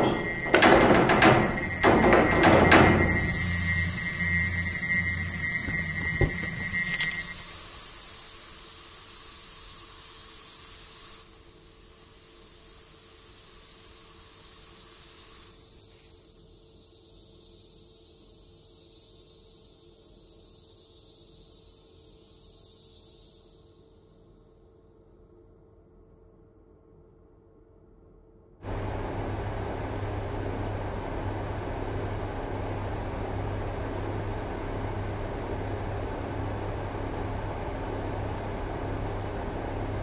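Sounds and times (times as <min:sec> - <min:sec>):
high wavering whine: 0:00.0 - 0:09.3
broad hiss: 0:03.3 - 0:11.5.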